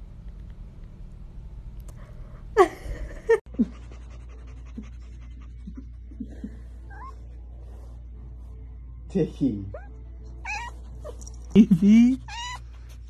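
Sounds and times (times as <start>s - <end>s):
kitten mewing: 9.7s - 11.2s, 12.1s - 13.0s.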